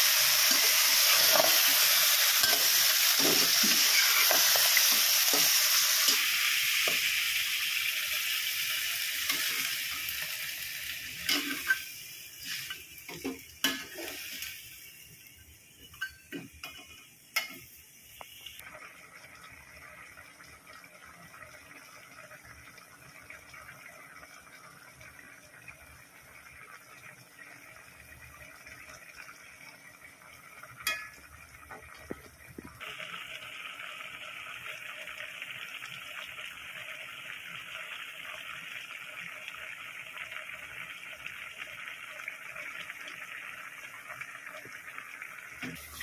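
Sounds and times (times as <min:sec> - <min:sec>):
liquid simmering in a wok: 0:00.0 - 0:46.0
metal spoon clinking on pan: 0:30.8 - 0:31.2.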